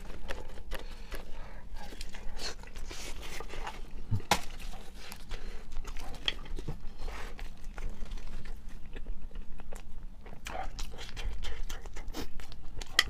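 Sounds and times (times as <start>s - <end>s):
chewing and lip smacking: 4.6s - 6.7s, 7.3s - 13.0s.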